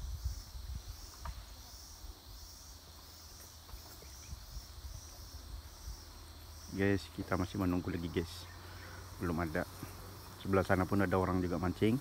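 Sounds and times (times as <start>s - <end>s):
insect chorus buzzing: 0.0s - 12.0s.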